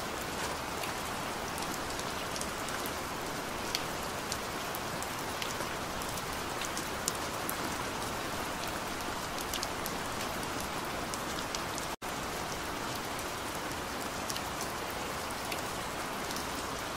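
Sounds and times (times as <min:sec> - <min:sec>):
steady rain hiss: 0:00.0 - 0:16.9
ticks of raindrops: 0:00.0 - 0:16.9.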